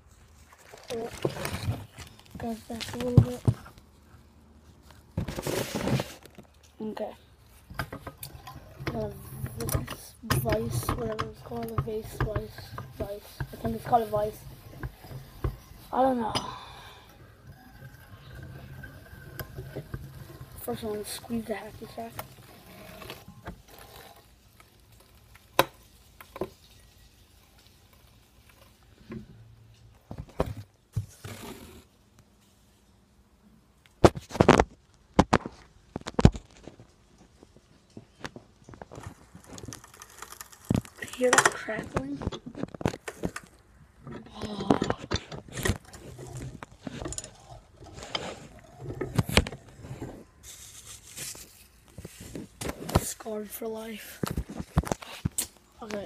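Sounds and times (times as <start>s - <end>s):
handling rustle: 0.0s - 8.2s, 44.4s - 56.0s
crackle of pellets being crushed: 17.4s - 29.0s, 34.0s - 43.7s.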